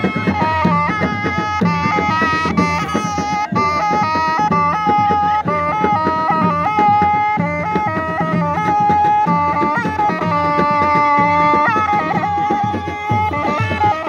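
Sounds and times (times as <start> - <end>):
shawm playing a reedy melody: 0.0 - 14.0
steady drum beat: 0.0 - 14.0.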